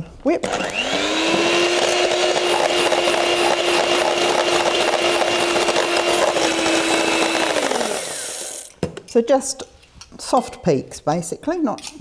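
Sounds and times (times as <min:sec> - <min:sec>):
electric hand mixer whipping cream: 0:00.5 - 0:08.7.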